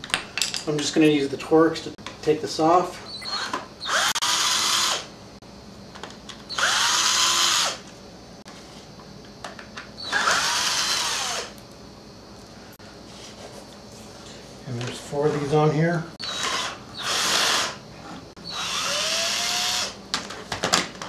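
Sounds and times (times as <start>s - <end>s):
cordless drill motor whine: 3.1s - 5.1s, 6.5s - 7.8s, 10.0s - 11.6s, 16.2s - 17.8s, 18.4s - 20.0s.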